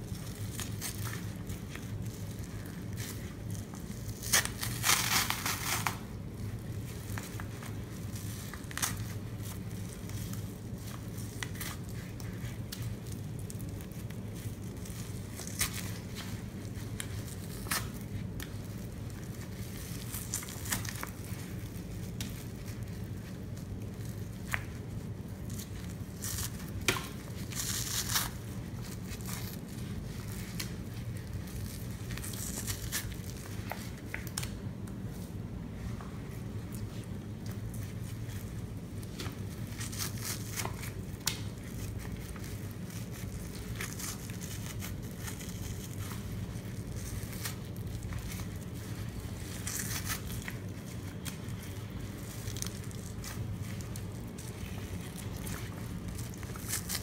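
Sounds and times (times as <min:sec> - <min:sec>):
foam crackling and squishing: 0:00.0 - 0:57.0.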